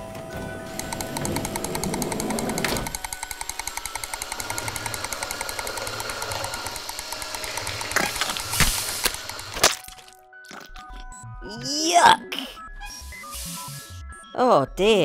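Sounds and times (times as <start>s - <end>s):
mechanical clatter: 0.6s - 10.0s.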